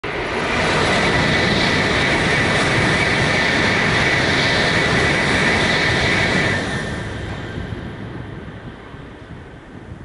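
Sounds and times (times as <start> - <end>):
bullet train rushing past: 0.0 - 10.0.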